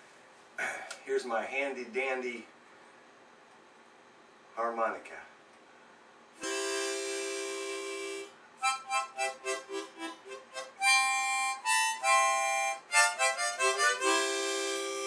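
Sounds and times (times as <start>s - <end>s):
harmonica tune: 6.4s - 15.0s.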